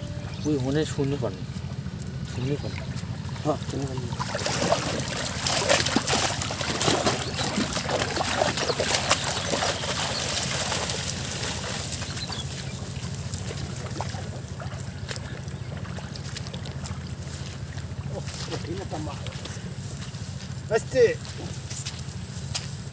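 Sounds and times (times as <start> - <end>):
wading feet splashing: 0.2 - 22.9
water streaming off net: 3.9 - 12.4.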